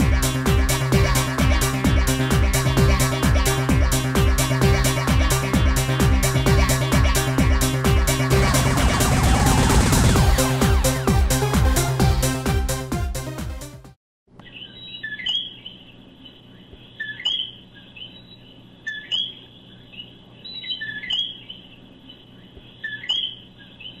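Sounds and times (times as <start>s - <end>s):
music: 0.0s - 14.0s.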